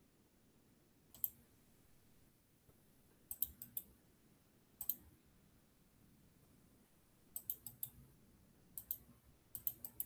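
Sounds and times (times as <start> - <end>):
faint computer mouse clicking: 1.1 - 1.4, 3.3 - 3.9, 4.8 - 5.1, 7.4 - 8.0, 8.8 - 10.0.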